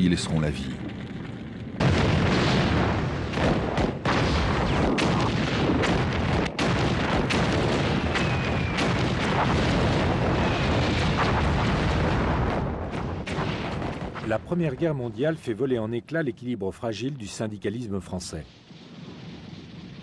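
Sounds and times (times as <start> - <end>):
gunfire and shell explosions: 0.1 - 15.2
sharp cracks: 0.8 - 14.4
falling shell whistles: 8.1 - 8.9.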